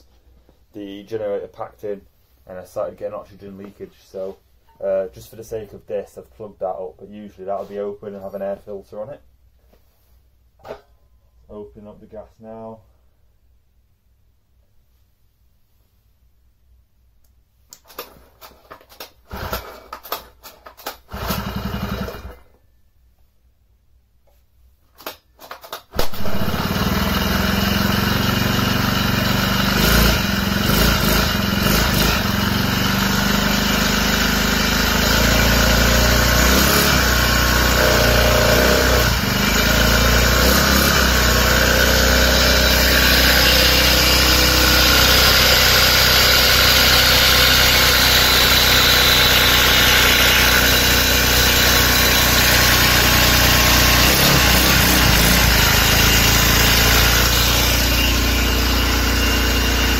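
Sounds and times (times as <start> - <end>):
small engine running: 19.3 - 19.9, 21.1 - 22.4, 26.0 - 59.9.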